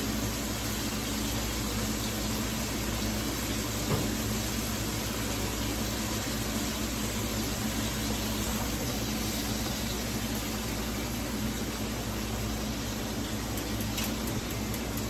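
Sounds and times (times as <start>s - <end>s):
pots of water boiling: 0.0s - 15.0s
vegetables frying in a skillet: 0.0s - 15.0s.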